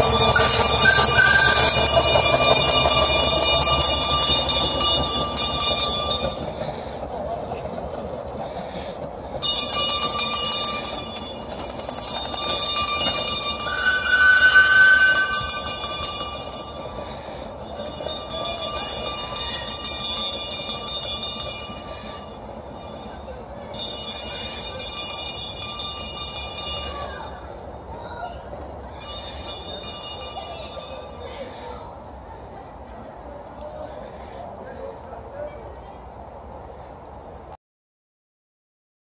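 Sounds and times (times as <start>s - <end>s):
high ringing tone: 0.0s - 6.6s, 9.4s - 27.2s
steam traction engine moving: 0.0s - 37.5s.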